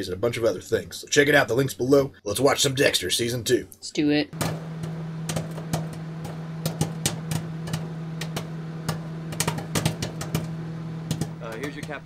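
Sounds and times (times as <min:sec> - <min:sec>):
low electrical hum: 0:04.4 - 0:12.0.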